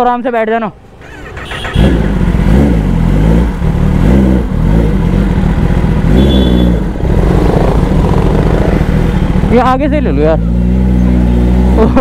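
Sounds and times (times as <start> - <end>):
motorcycle engine revving: 1.0 - 12.0.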